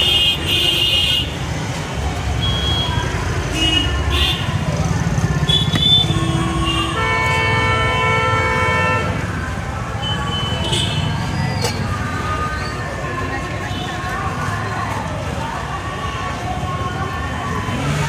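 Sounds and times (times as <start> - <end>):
street traffic rumbling: 0.0 - 18.0
vehicle horns honking: 5.4 - 9.2.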